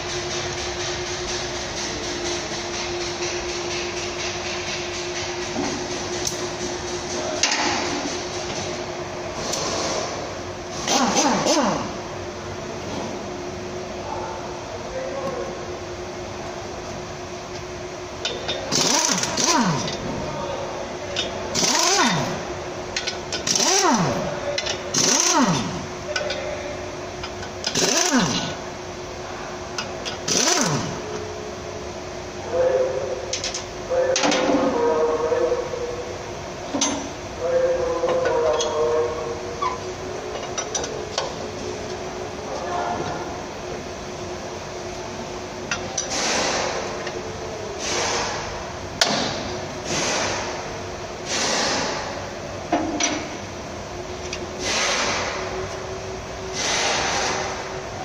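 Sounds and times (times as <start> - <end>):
steady hum: 0.0 - 58.0
power tool whirring: 18.7 - 20.0, 21.6 - 22.4, 23.4 - 24.2, 24.9 - 25.8, 27.7 - 28.5, 30.3 - 31.0.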